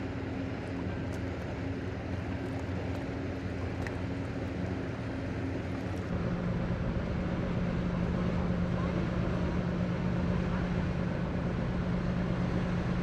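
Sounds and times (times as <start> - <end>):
distant boat engine hum: 0.0 - 13.0
ferry engines droning: 3.2 - 13.0.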